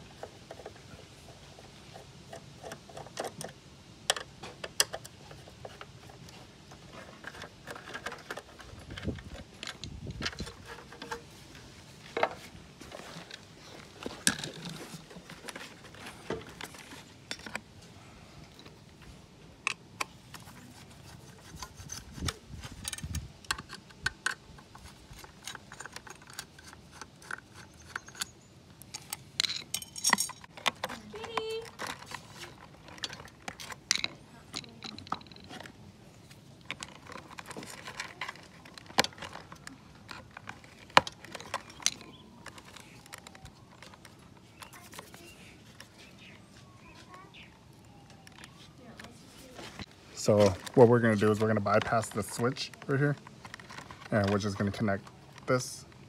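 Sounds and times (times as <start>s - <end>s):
plastic clicks and rattles: 1.9s - 11.6s, 21.5s - 35.8s, 36.6s - 45.2s, 49.8s - 56.0s.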